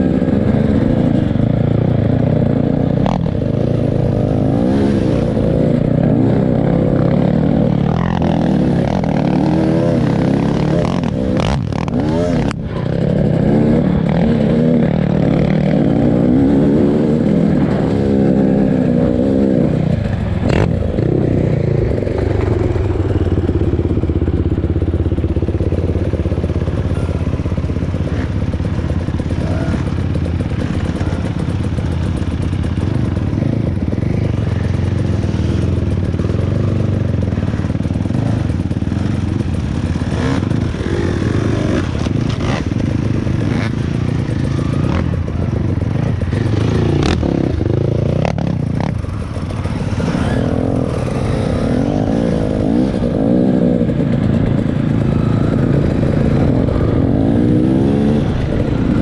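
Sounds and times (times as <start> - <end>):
vehicle engine running: 17.4 - 59.0.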